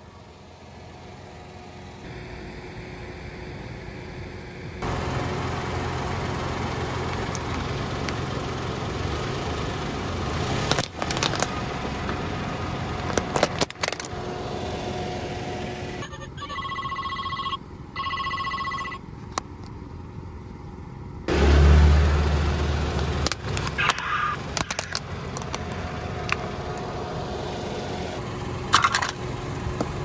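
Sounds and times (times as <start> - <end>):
car engine idling: 0.0 - 30.0
car engine surging: 0.6 - 16.3, 20.0 - 30.0
clothespins cracking under tyre: 10.7 - 11.5, 23.2 - 26.4
toy phone ringtone beeps: 16.0 - 19.0.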